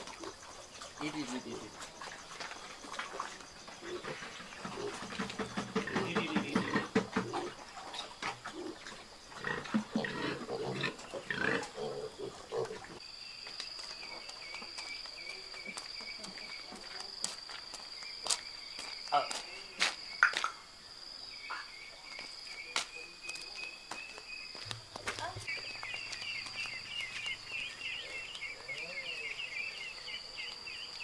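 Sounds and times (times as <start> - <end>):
piglets grunting and squealing: 8.3 - 13.0.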